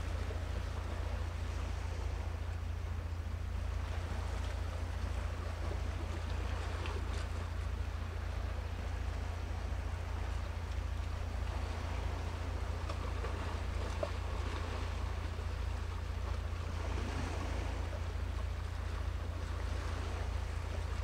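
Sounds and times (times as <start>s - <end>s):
sea noise: 0.0s - 21.0s.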